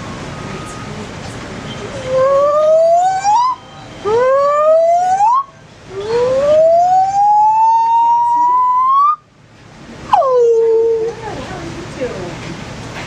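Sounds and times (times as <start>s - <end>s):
gibbon whoops: 5.9s - 9.2s, 10.2s - 11.1s.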